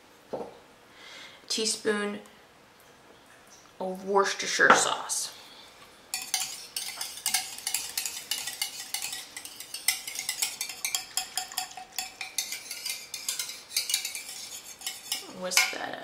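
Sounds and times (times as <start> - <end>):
whisk clicking against bowl: 6.1 - 15.8.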